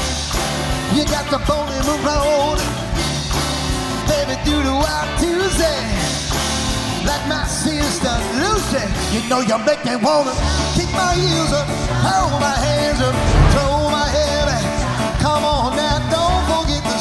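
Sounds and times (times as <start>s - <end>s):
rock and roll band with singing: 0.0s - 13.1s, 14.1s - 17.0s.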